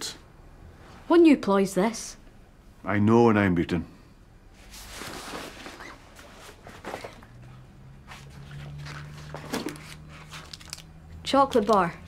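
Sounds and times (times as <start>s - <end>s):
clothing and rucksack rustling: 4.6s - 10.8s.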